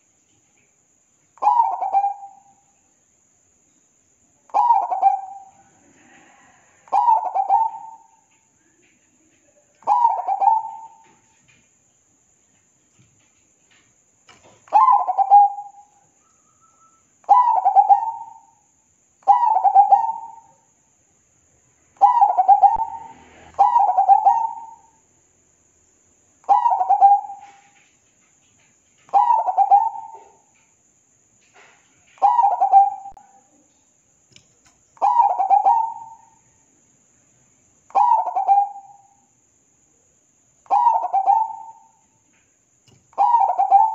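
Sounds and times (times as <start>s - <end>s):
dove cooing: 1.4s - 2.5s, 4.5s - 8.2s, 9.8s - 11.2s, 14.7s - 15.9s, 17.3s - 18.5s, 19.3s - 20.5s, 22.0s - 24.9s, 26.5s - 27.8s, 29.1s - 30.5s, 32.2s - 33.3s, 35.0s - 36.3s, 37.9s - 39.0s, 40.7s - 42.0s, 43.2s - 43.9s.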